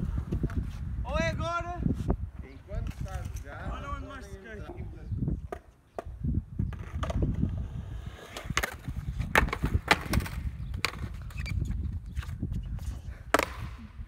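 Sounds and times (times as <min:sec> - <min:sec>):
skateboard wheels rolling: 0:05.5 - 0:13.9
skateboard clacking on ground: 0:08.3 - 0:11.5.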